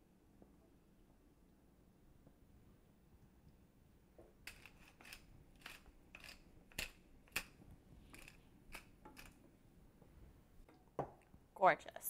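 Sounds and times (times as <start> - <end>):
pepper mill grinding: 4.5 - 9.4.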